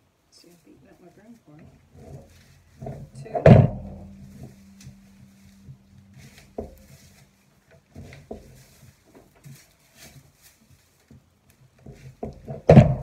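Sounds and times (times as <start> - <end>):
twine rustling: 0.3 - 13.0
soft knocks: 2.0 - 9.5, 11.8 - 13.0.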